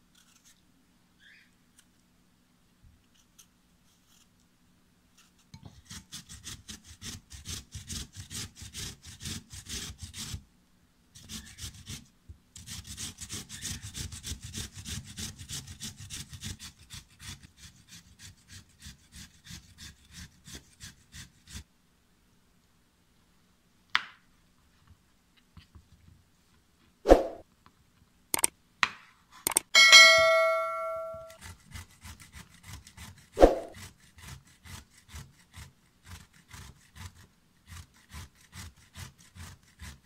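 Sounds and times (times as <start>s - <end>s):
potato grating on metal grater: 0.1s - 0.6s, 5.1s - 10.4s, 11.1s - 21.7s, 31.3s - 40.0s
sharp knock: 29.5s - 31.4s.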